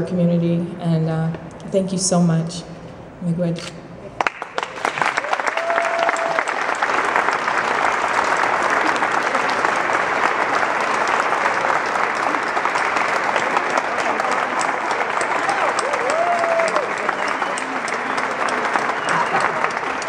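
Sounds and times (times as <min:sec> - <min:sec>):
audience applauding: 0:04.2 - 0:20.0
voices in crowd: 0:07.6 - 0:20.0.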